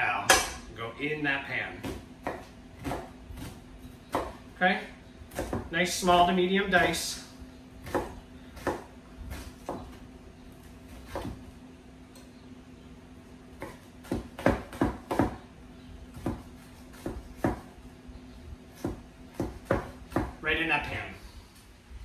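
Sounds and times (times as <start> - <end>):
knife chopping on wooden board: 0.3 - 0.6, 1.8 - 4.4, 5.3 - 5.7, 7.8 - 10.0, 11.0 - 11.5, 13.6 - 15.4, 16.1 - 17.8, 18.8 - 20.4.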